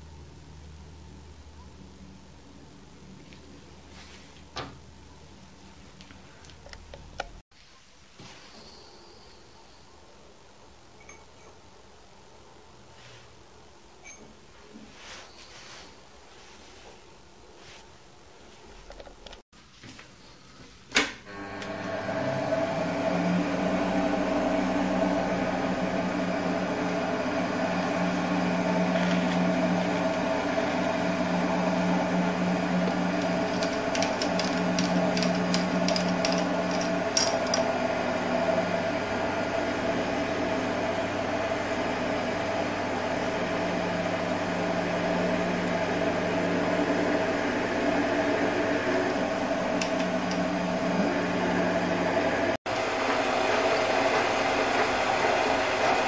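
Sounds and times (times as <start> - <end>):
lathe motor humming and whining: 21.3 - 56.0.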